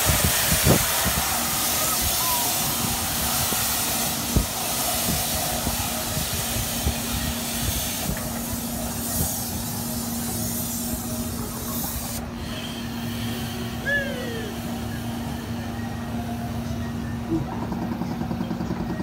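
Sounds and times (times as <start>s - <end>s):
low machinery hum: 0.0s - 19.0s
ride machinery hissing: 0.0s - 19.0s.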